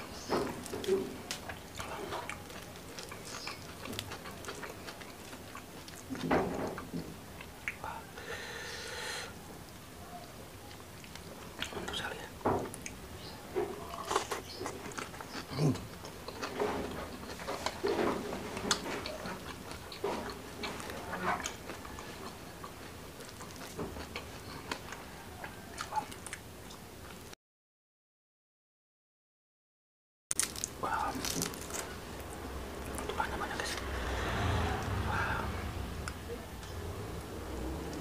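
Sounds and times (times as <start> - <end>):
chewing and biting food: 0.5 - 7.8, 13.8 - 26.8, 30.4 - 32.0.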